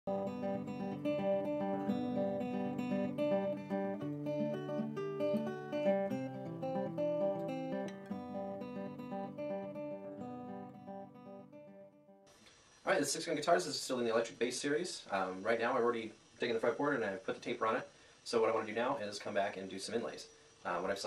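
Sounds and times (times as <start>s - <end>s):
acoustic guitar picking: 0.1s - 12.2s.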